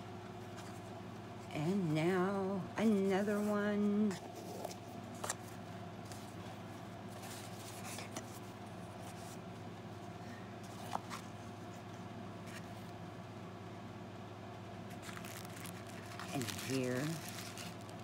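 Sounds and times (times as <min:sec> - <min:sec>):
steady low hum: 0:00.0 - 0:18.0
cardboard box rustling and scraping: 0:15.0 - 0:18.0.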